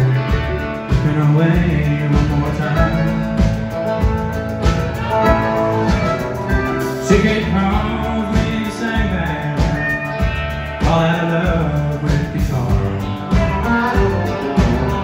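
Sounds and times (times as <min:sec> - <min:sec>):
live country band playing: 0:00.0 - 0:15.0.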